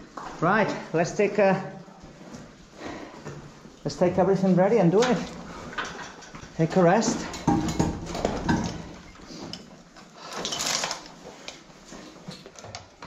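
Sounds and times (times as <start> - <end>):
diving gear knocking and clinking: 5.0 - 9.7.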